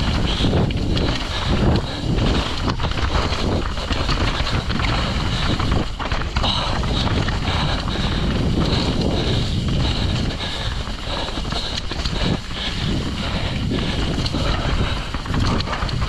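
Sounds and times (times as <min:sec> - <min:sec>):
bike rattling and knocking: 0:00.0 - 0:16.0
tyres rolling on dirt: 0:00.0 - 0:16.0
wind rushing over microphone: 0:00.0 - 0:16.0.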